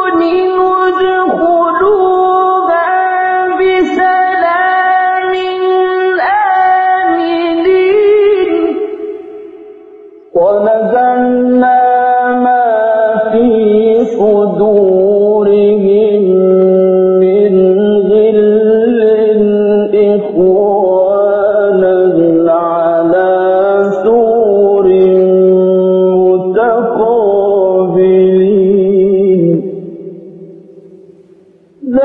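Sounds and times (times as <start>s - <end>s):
man chanting recitation: 0.0s - 9.2s, 10.3s - 29.8s, 31.8s - 32.0s.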